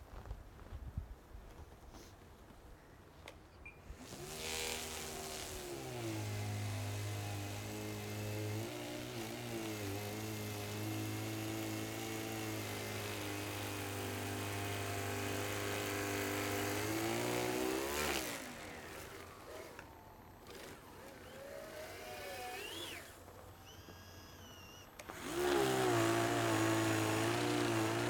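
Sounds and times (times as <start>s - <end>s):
snow blower motor running: 4.0s - 28.0s
faint wavering motor whine: 15.7s - 28.0s.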